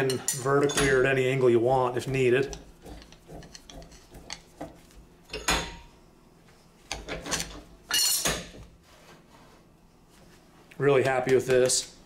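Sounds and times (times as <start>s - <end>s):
metal clanks and scrapes: 2.4s - 5.9s.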